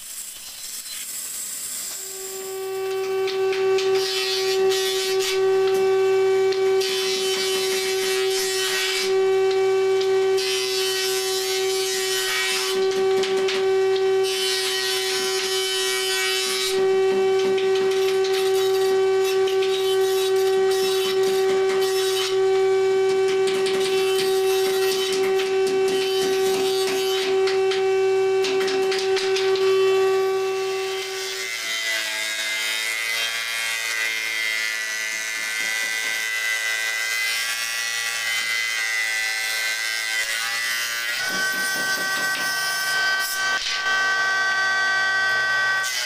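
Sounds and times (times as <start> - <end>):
rough wood cutting noise: 0.0 - 46.0
jointer whining: 1.9 - 32.0
thickness planer humming: 2.1 - 32.8, 40.5 - 46.0.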